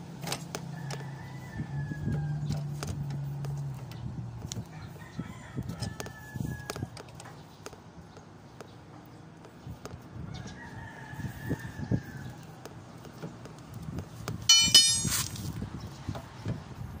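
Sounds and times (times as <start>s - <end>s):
loud high ring: 14.5s - 15.2s
hand tools scraping on steel: 14.5s - 15.3s.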